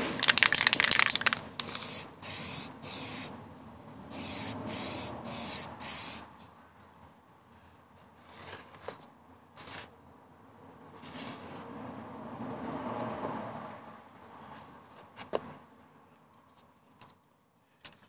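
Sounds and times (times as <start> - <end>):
aerosol spray can hissing: 0.2 - 3.3, 4.1 - 6.2.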